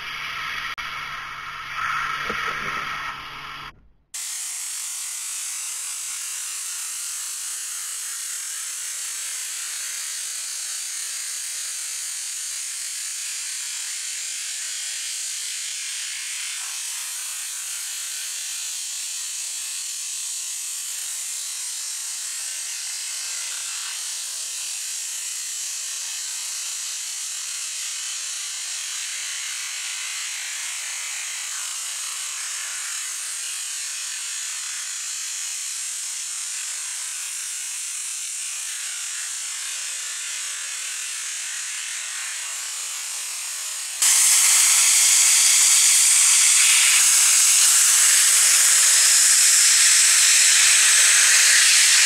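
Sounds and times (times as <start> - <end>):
mechanical humming: 0.0 - 4.0, 44.0 - 52.0
pressure washer spraying: 0.0 - 10.8, 40.9 - 52.0.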